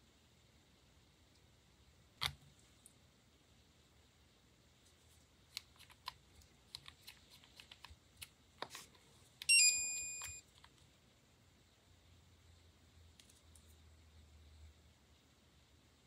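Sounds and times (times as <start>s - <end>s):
nail lamp beep: 9.4s - 10.4s.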